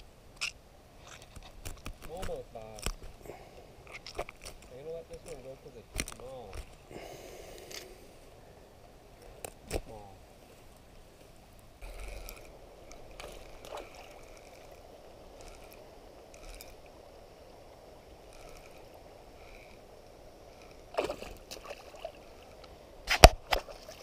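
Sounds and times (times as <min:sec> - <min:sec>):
fishing reel clicks: 0:11.8 - 0:17.4, 0:18.1 - 0:21.5
rushing water: 0:11.9 - 0:24.0.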